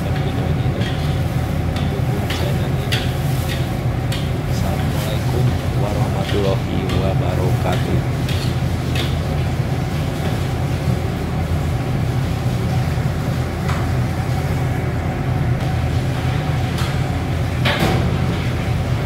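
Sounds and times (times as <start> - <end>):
spatula and wok clattering: 0.0 - 11.0
gas burner rumbling: 0.0 - 19.0.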